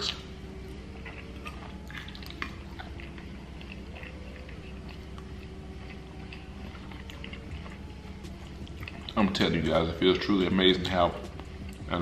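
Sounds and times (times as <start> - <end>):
man chewing wetly: 0.0 - 9.8, 11.1 - 12.0
moist mouth clicks and smacks: 1.0 - 9.2.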